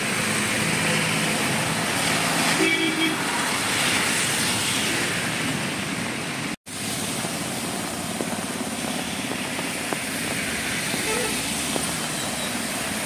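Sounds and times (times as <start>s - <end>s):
bus passing: 0.0s - 13.0s
heavy rain: 0.0s - 13.0s
tyres splashing through water: 0.0s - 13.0s
car wading through floodwater: 5.3s - 13.0s.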